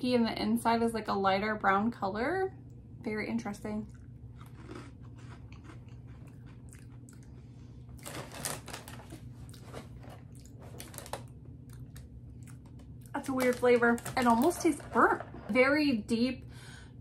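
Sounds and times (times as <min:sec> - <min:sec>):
person chewing crunchy cereal: 0:03.9 - 0:13.2.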